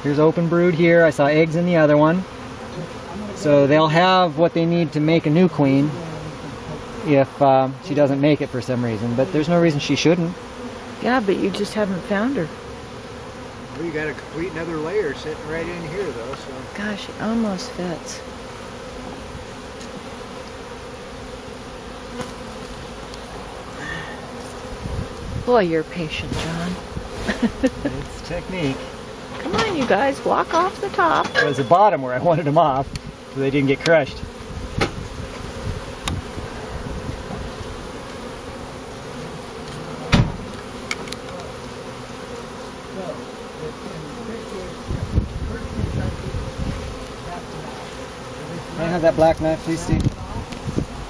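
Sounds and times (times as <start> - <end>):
honeybees buzzing: 0.0 - 51.0
light taps and knock on hive box: 16.2 - 16.5, 19.4 - 20.6, 22.1 - 23.3, 27.9 - 31.6, 32.8 - 38.3, 39.2 - 41.7, 49.2 - 50.9.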